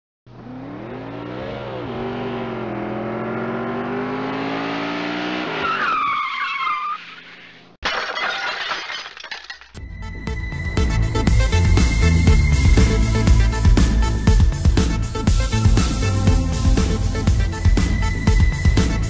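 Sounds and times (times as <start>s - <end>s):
car engine accelerating: 0.3s - 5.8s
tyres screeching: 5.6s - 7.7s.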